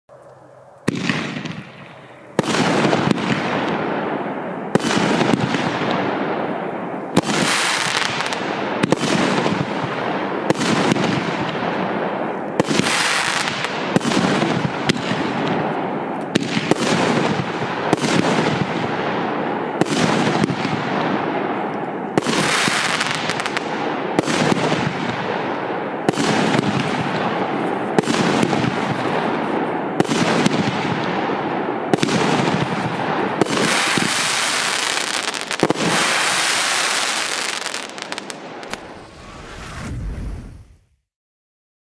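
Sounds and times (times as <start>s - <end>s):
firework reports: 0.1s - 41.1s
crackling of bursting stars: 38.0s - 41.0s.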